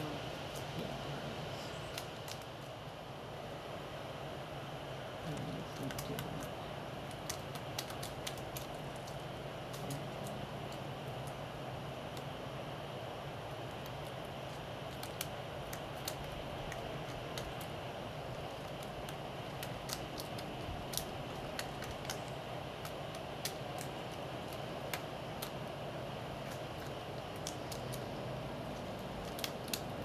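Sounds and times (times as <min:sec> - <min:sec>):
steady background noise: 0:00.0 - 0:30.0
woodpecker tapping on bark: 0:07.0 - 0:11.4.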